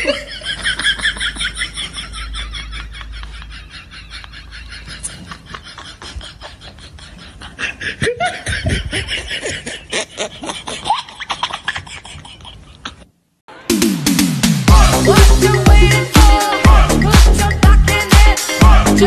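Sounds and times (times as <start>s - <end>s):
laughter in rapid bursts: 0.0s - 13.1s.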